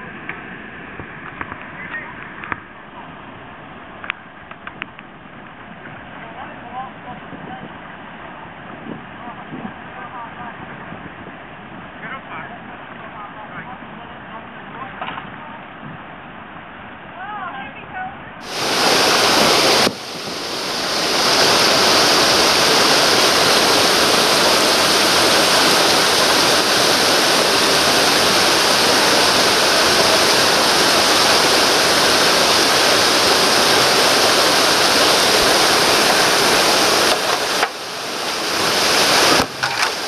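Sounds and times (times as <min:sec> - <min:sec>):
whitewater rushing over rocks: 0:18.4 - 0:40.0.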